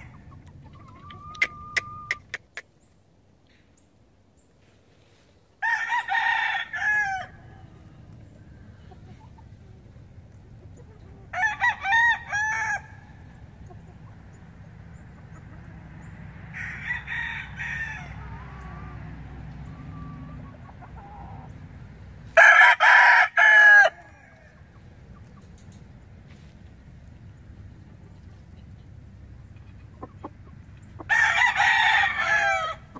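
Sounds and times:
rooster crowing: 5.6s - 8.0s, 11.3s - 13.0s, 16.5s - 19.0s, 22.3s - 24.6s, 31.0s - 32.9s.

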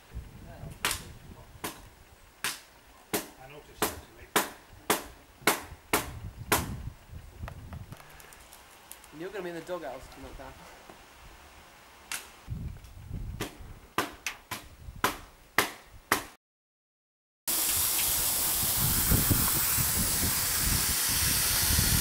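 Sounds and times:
steam locomotive hissing steam: 17.5s - 22.0s.

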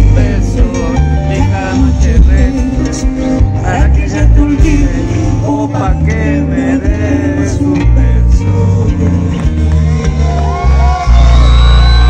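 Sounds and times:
live band through pa: 0.0s - 12.0s
crowd whooping and shouting: 9.4s - 12.0s.

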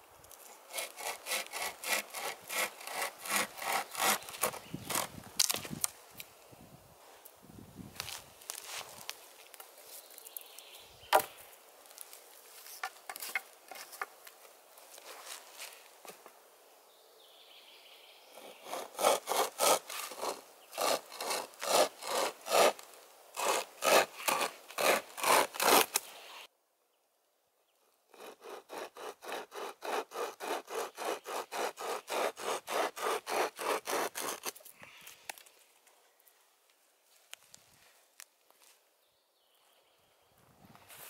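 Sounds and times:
saw cutting wood: 0.7s - 5.1s, 18.4s - 26.2s, 28.1s - 34.6s.

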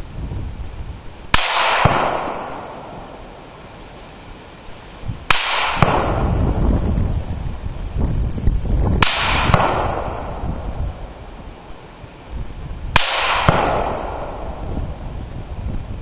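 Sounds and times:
rifle shots with echo: 1.3s - 3.4s, 5.3s - 6.4s, 9.0s - 11.0s, 13.0s - 14.9s.

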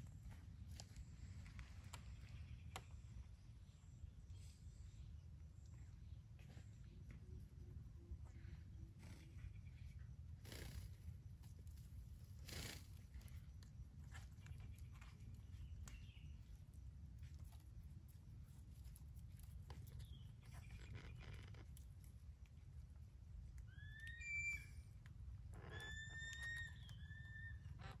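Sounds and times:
whistled parrot calls: 23.7s - 24.8s.

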